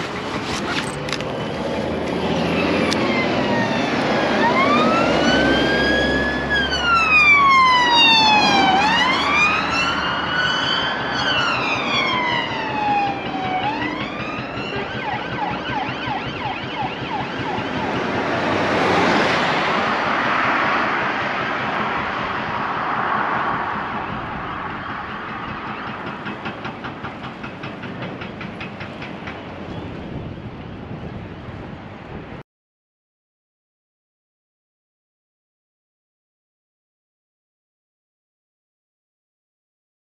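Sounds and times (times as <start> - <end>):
vehicles passing close: 0.0 - 32.4
police siren wailing and yelping: 2.3 - 19.8.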